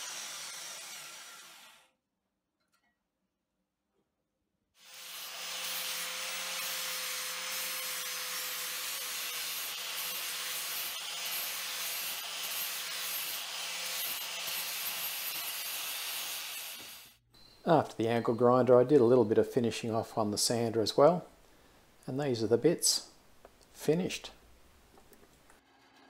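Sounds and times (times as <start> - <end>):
angle grinder grinding metal: 0.0 - 1.9, 4.8 - 17.2.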